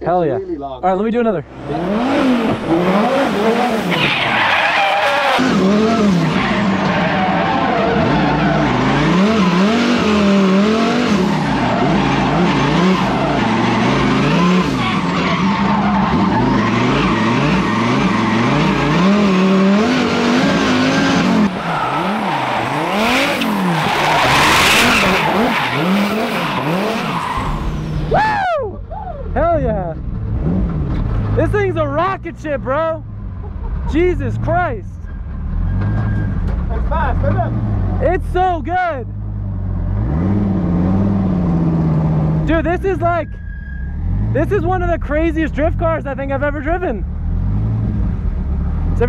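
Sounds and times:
tyres skidding: 0.0s - 49.0s
car engine revving: 1.2s - 28.3s, 29.3s - 49.0s.

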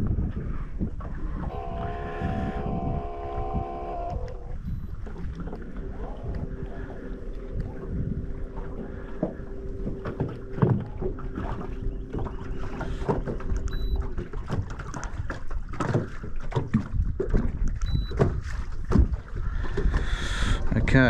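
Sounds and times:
wind on microphone: 0.0s - 21.0s
steady hum: 1.2s - 14.6s
water slapping against boat hull: 4.0s - 20.8s.

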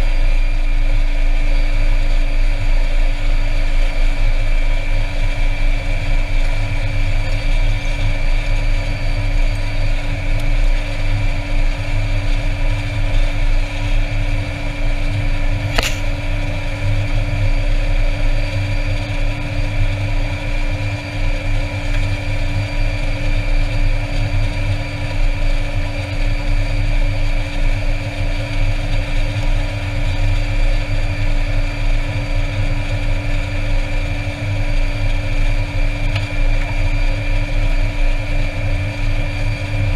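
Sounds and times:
sharp click: 15.7s - 16.2s.

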